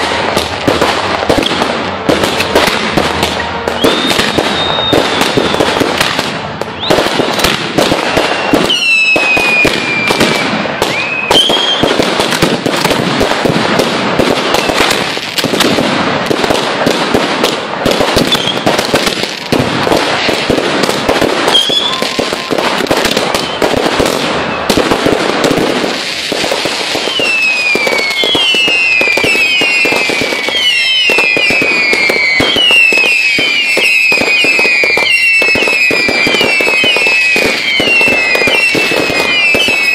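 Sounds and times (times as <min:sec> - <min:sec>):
fireworks banging and crackling: 0:00.0 - 0:39.9
shrill falling whistles: 0:03.8 - 0:05.7, 0:08.1 - 0:11.9, 0:21.5 - 0:22.2.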